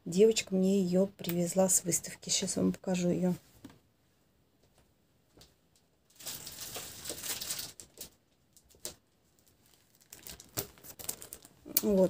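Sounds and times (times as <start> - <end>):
plastic wrapping rustling: 6.1 - 12.0.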